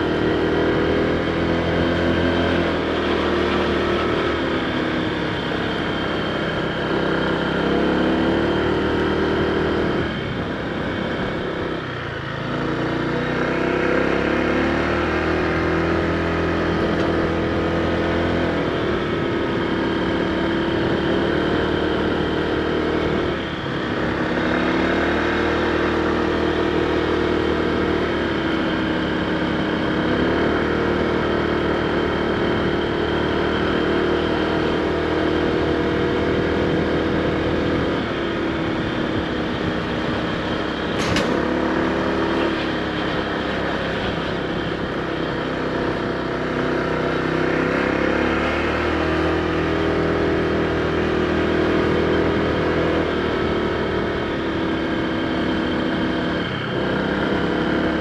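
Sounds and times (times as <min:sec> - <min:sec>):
scooter engine running: 0:00.0 - 0:58.0
sharp click: 0:41.0 - 0:41.6.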